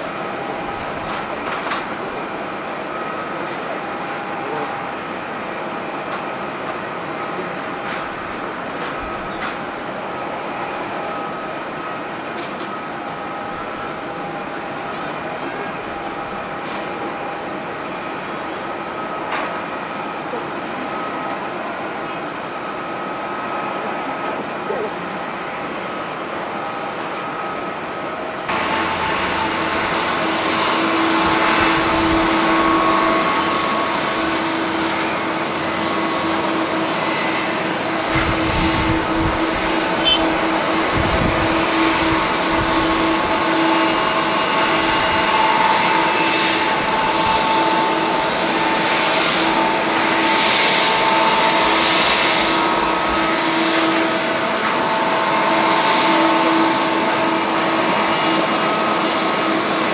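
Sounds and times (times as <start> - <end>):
jet engines running: 0.0 - 59.9
wind rumbling on microphone: 38.1 - 43.5.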